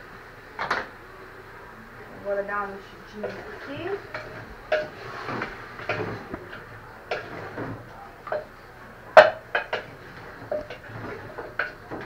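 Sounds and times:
utensil scraping cooking pan: 3.0 - 12.0.

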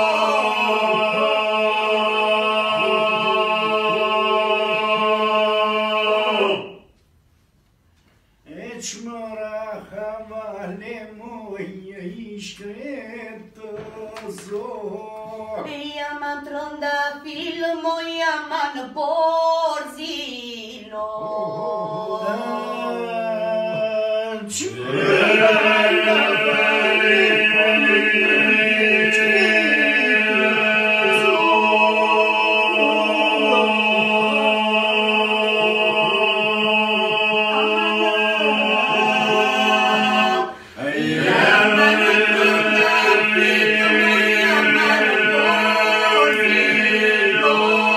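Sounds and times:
group singing: 0.0 - 7.0, 20.7 - 47.9
lead voice singing: 20.8 - 47.9
low held vocal drone: 20.9 - 47.9.

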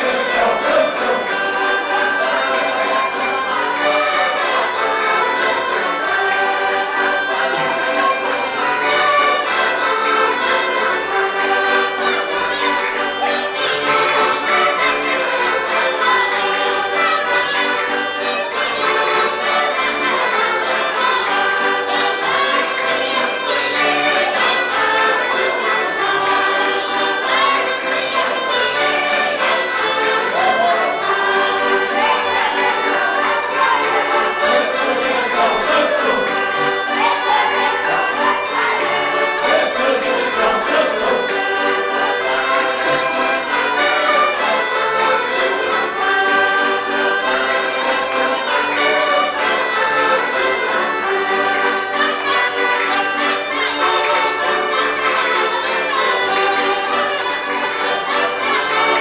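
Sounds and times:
group of voices singing: 0.0 - 3.0, 30.2 - 42.5
accordion playing folk tune: 0.0 - 59.0.

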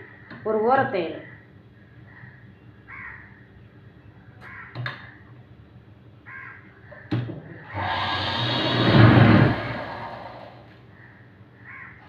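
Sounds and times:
sewing machine motor running: 7.7 - 10.6.

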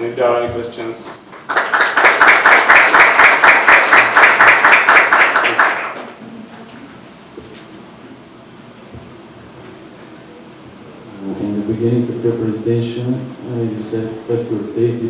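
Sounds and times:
audience clapping: 1.0 - 6.2.

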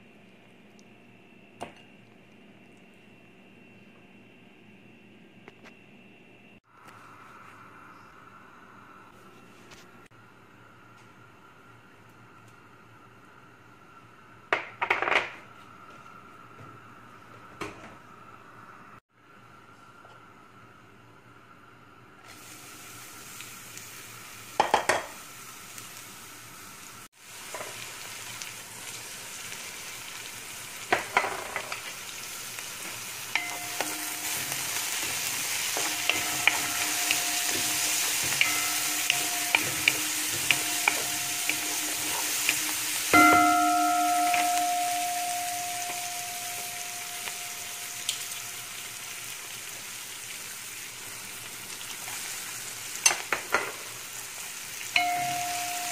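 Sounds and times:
onions sizzling in hot oil: 22.3 - 55.9
spatula knocking against pot: 35.8 - 46.7
wooden spatula scraping pot: 39.5 - 43.1.

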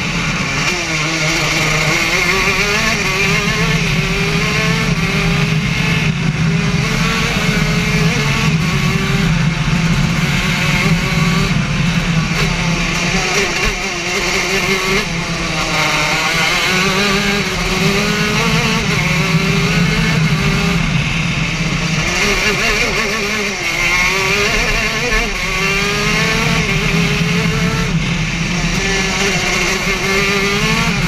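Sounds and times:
racing kart engine: 0.0 - 31.0.

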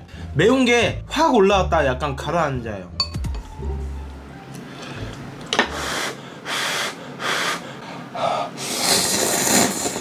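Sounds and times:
person slurping noodles: 5.7 - 7.6, 8.2 - 10.0.

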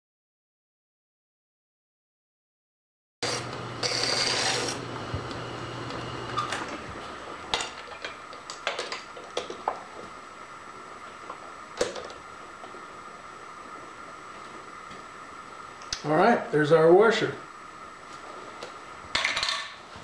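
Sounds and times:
machine humming: 3.2 - 16.0
steady whine: 3.2 - 19.2.

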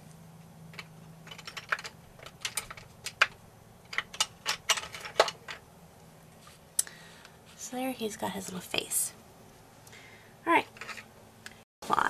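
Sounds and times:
pencils clicking together: 0.7 - 5.6.

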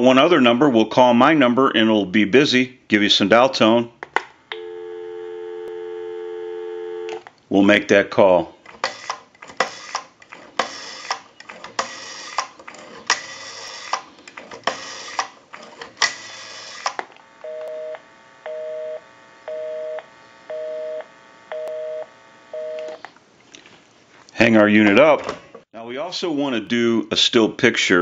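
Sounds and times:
telephone busy signal: 4.6 - 7.2, 17.4 - 23.0
rotary dial whirring clicks: 8.6 - 17.8.

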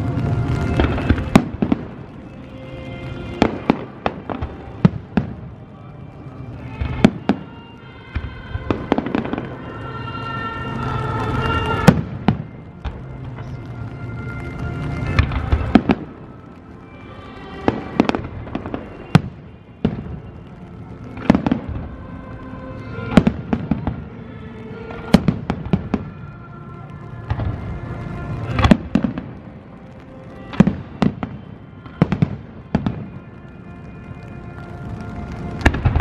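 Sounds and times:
fireworks crackling: 0.0 - 36.0
music: 0.0 - 36.0.

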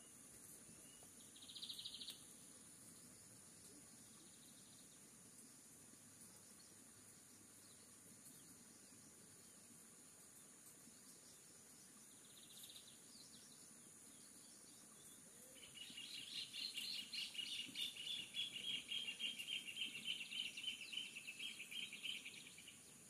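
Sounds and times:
bird chattering song: 15.6 - 22.8.

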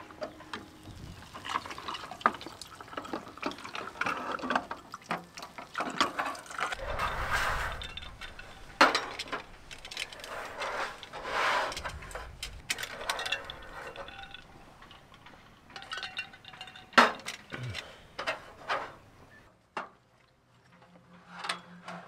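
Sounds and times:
metal mugs and tableware clinking: 5.5 - 11.2, 12.7 - 15.1, 15.7 - 19.0.

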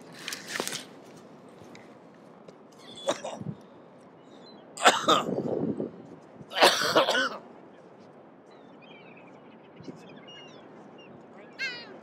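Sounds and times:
faint high bird calls: 2.7 - 4.8, 8.5 - 12.0
person coughing hard: 3.0 - 3.5, 4.8 - 5.4, 6.5 - 7.4.

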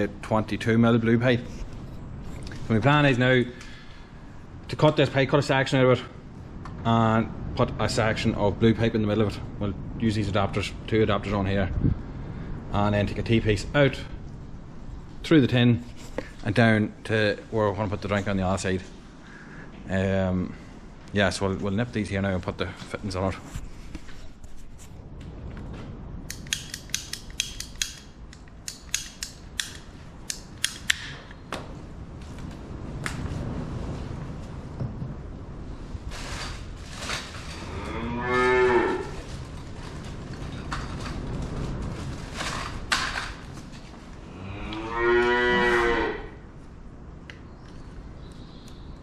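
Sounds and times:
ratcheting pipe cutter clicking: 26.3 - 31.1
cow mooing: 37.6 - 39.1, 44.3 - 46.4.

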